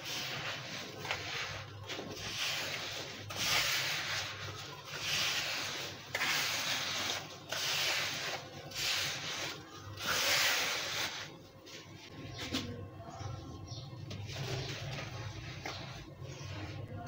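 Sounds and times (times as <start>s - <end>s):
fingers raking damp sand: 0.0s - 11.4s.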